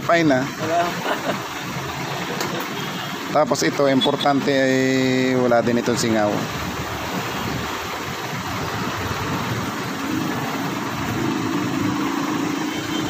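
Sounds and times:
engine running: 0:06.4 - 0:13.0.

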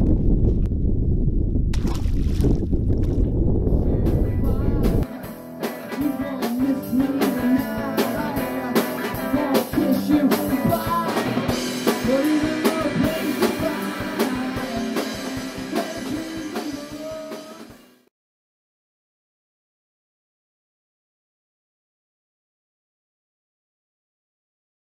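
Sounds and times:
song with drums and guitar: 0:03.8 - 0:18.1.

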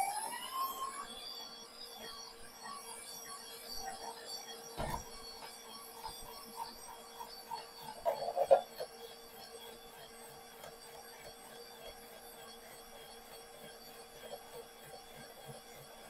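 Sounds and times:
stand mixer motor humming: 0:04.8 - 0:16.0.

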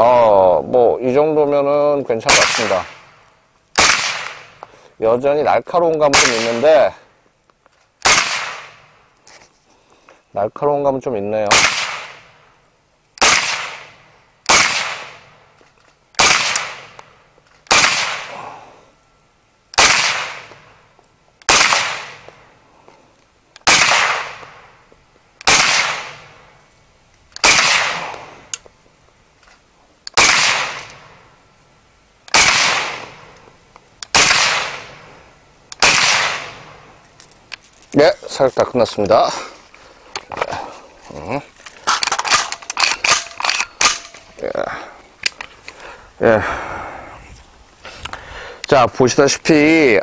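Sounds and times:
suppressed rifle shots: 0:02.3 - 0:03.1, 0:03.8 - 0:04.6, 0:06.1 - 0:06.8, 0:08.0 - 0:08.9, 0:11.5 - 0:12.4, 0:13.2 - 0:15.3, 0:16.2 - 0:17.0, 0:17.7 - 0:18.4, 0:19.8 - 0:20.7, 0:21.4 - 0:22.4, 0:23.6 - 0:24.7, 0:25.4 - 0:26.4, 0:27.4 - 0:28.2, 0:30.2 - 0:31.2, 0:32.3 - 0:33.3, 0:34.1 - 0:35.1, 0:35.7 - 0:36.8.

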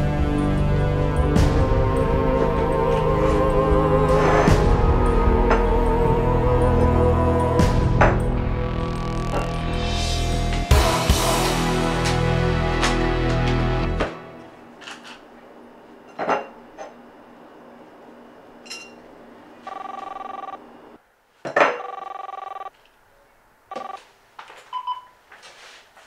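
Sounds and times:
phone ringing: 0:19.6 - 0:20.8, 0:21.6 - 0:22.7, 0:23.7 - 0:24.1.

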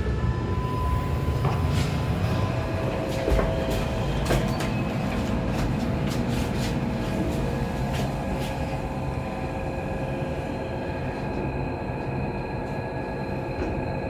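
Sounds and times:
low elevator rumble: 0:00.0 - 0:14.0.

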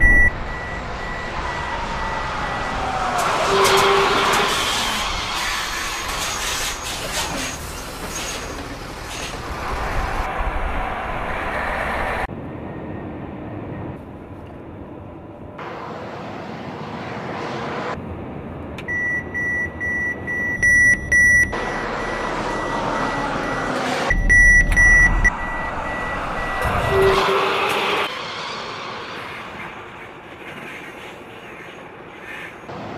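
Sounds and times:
high-pitched electronic warning beeps: 0:00.0 - 0:02.3, 0:18.9 - 0:27.2.

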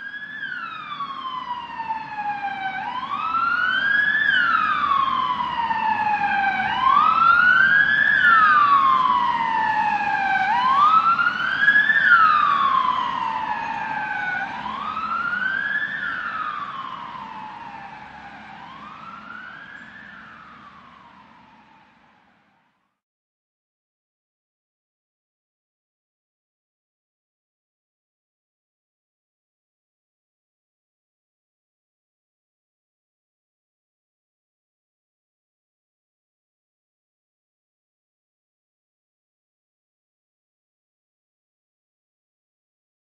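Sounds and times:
siren wailing: 0:00.0 - 0:22.7.

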